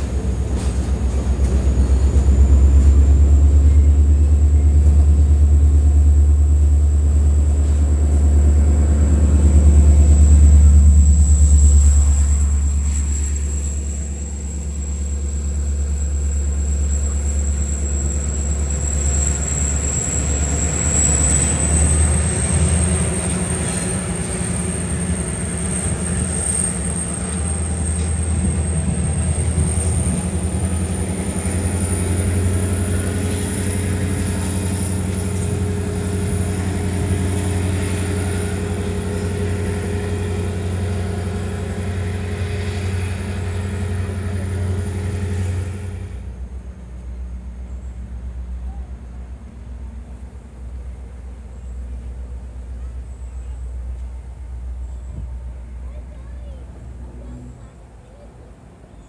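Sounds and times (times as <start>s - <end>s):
diesel locomotive engine droning: 0.0s - 59.0s
thin high whine: 9.6s - 22.6s.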